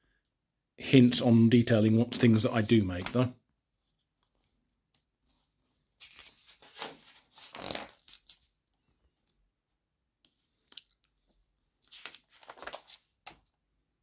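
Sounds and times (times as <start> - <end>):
magazine pages turning: 2.1 - 3.3, 6.0 - 8.5, 11.8 - 13.6.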